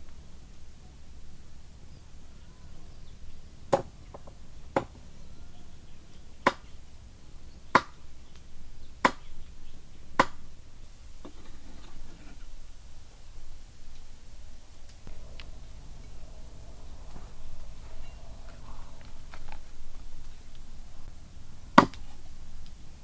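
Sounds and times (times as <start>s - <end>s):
cleaver chopping on wooden block: 3.7s - 5.0s, 6.4s - 6.7s, 7.8s - 8.0s, 9.0s - 9.3s, 10.2s - 10.4s, 21.8s - 22.0s.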